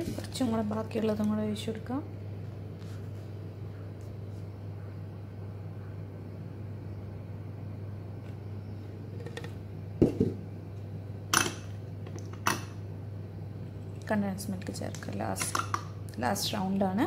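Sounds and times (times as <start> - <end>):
steady low hum: 0.0 - 17.0
kitchenware knocks and clinks: 11.3 - 11.7.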